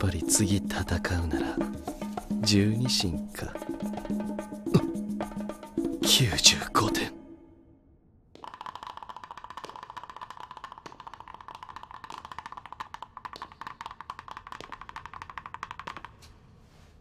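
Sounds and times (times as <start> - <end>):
fast dry wooden clicks: 8.4 - 16.3.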